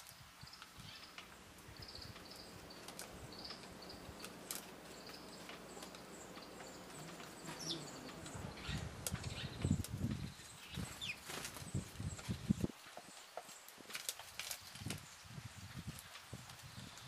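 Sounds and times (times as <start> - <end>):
bird pecking light ticks: 2.1 - 8.4.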